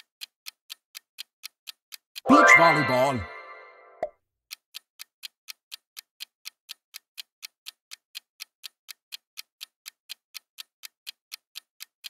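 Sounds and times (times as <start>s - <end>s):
countdown timer ticking: 2.2s - 4.1s.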